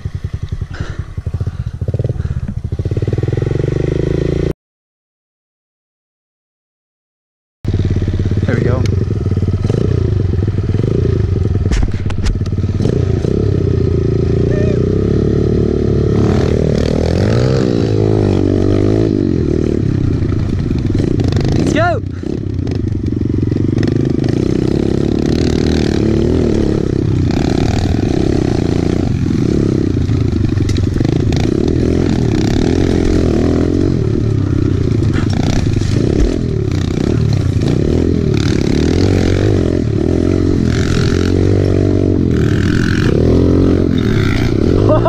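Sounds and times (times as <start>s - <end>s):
dirt bike engines revving: 0.0s - 4.5s, 7.7s - 45.0s
bike rattling over ground: 27.2s - 37.8s.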